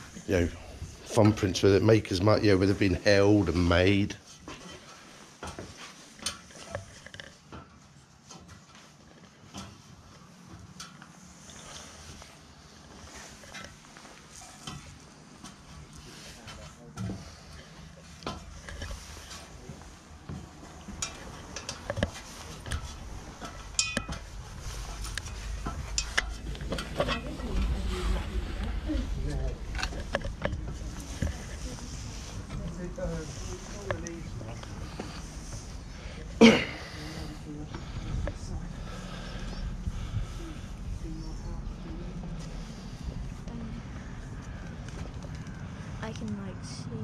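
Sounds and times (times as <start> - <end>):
light metallic clinks: 22.7 - 27.5.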